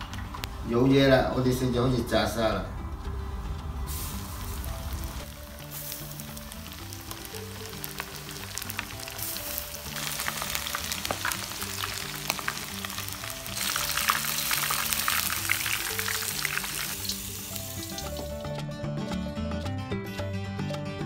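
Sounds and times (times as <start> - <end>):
background music: 0.0 - 21.0
deep-frying sizzle: 3.7 - 18.5.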